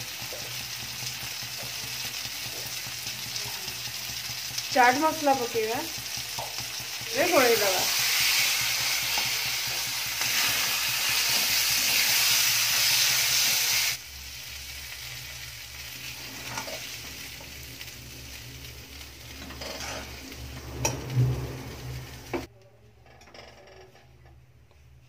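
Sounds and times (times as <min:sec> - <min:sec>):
food sizzling in a pan: 0:00.0 - 0:22.5
ladle scraping and knocking pan: 0:16.1 - 0:17.0, 0:19.4 - 0:22.5.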